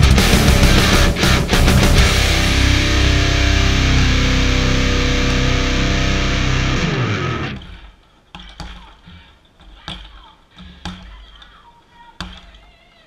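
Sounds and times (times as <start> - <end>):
electric guitar rock music: 0.0 - 7.8.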